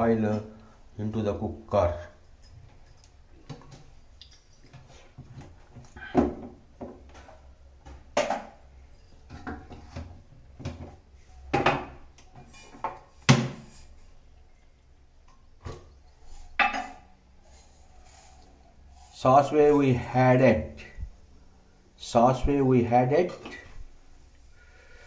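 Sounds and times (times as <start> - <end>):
pots and utensils clinking: 16.4 - 17.2.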